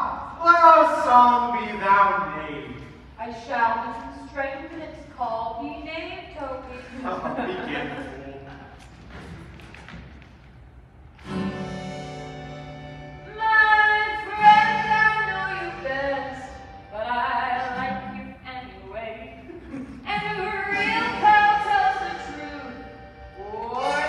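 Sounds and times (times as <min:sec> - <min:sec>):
acoustic guitar strumming: 0:11.2 - 0:19.4, 0:20.1 - 0:24.0
woman singing: 0:13.3 - 0:24.0.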